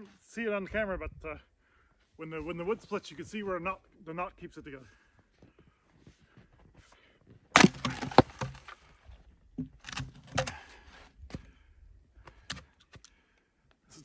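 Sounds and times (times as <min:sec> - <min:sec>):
axe striking log: 0:07.5 - 0:08.8, 0:09.6 - 0:10.6
wood cracking: 0:07.5 - 0:08.9, 0:09.6 - 0:10.7.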